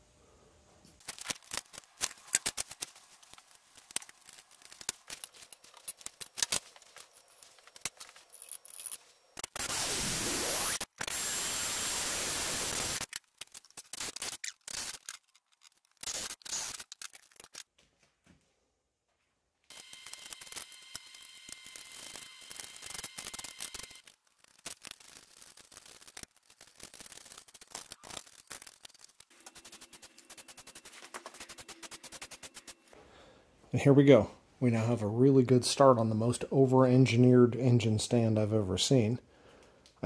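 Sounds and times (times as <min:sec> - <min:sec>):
cordless drill boring through steel: 0:09.6 - 0:13.0.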